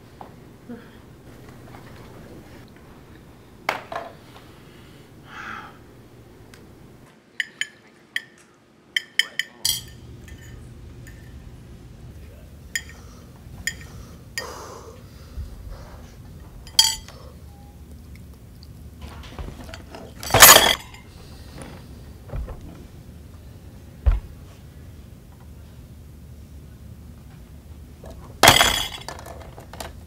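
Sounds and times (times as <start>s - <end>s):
cutlery and dishes clinking: 7.4s - 11.4s, 12.8s - 13.0s, 16.7s - 17.1s, 19.6s - 21.0s, 28.4s - 29.4s.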